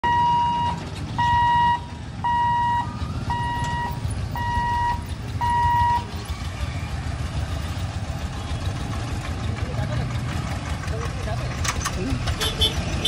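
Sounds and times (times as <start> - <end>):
level-crossing warning buzzer beeping: 0.0 - 6.1
motorcycle and scooter engines: 0.0 - 13.0.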